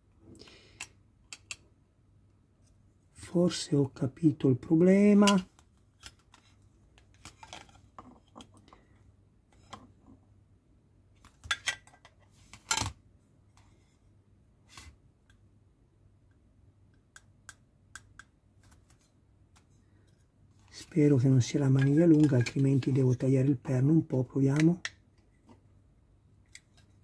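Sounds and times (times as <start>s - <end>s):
plastic parts clicking and tapping: 0.8s - 1.7s.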